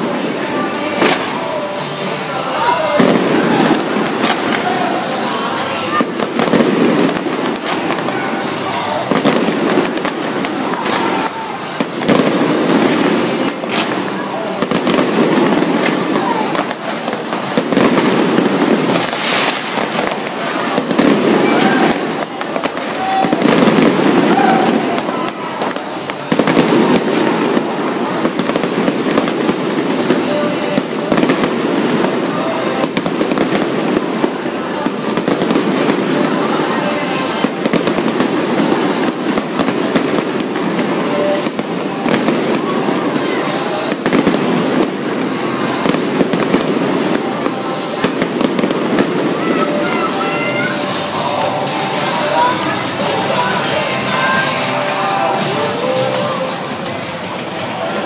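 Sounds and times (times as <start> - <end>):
fireworks bangs and crackles: 0.0 - 58.0.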